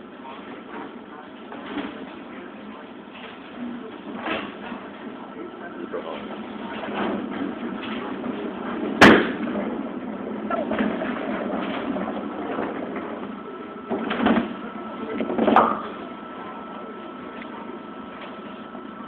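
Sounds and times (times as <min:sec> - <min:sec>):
bowling balls rolling: 0:06.1 - 0:16.6
distant bowling pins: 0:06.7 - 0:16.0.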